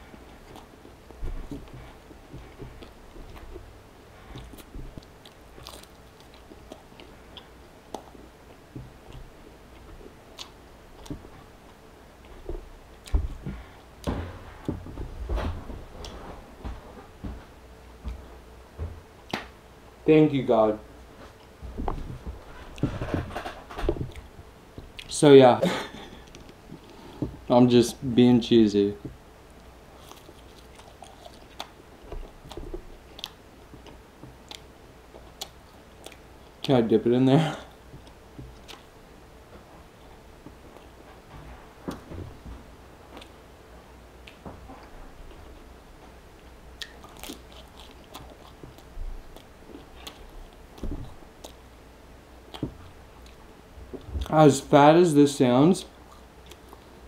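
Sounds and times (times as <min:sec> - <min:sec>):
man chewing sandwich: 0:00.0 - 0:18.4, 0:21.0 - 0:25.2, 0:29.0 - 0:36.8, 0:37.6 - 0:54.3, 0:55.9 - 0:57.0
lip smacks and chewing clicks: 0:04.3 - 0:08.3, 0:30.0 - 0:36.8, 0:38.0 - 0:39.0, 0:43.1 - 0:43.4, 0:44.2 - 0:45.6, 0:46.4 - 0:51.7, 0:56.0 - 0:57.0
dull thumps and knocks: 0:04.4 - 0:05.0, 0:12.4 - 0:19.4, 0:21.6 - 0:24.2, 0:50.8 - 0:51.2.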